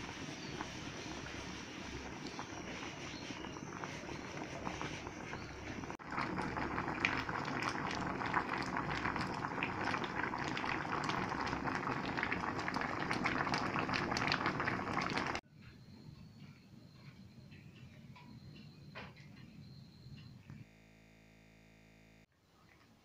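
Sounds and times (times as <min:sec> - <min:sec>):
water boiling with bubbling: 0:00.0 - 0:15.4.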